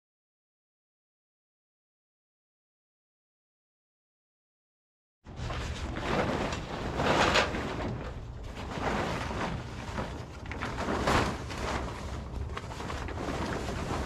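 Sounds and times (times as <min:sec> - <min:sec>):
plastic tarp rustling: 0:05.3 - 0:14.0.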